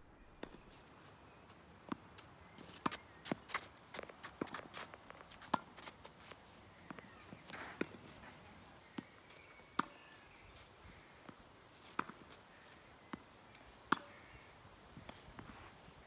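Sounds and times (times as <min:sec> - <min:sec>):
tennis balls bouncing on clay: 0:01.5 - 0:10.2, 0:11.2 - 0:14.2.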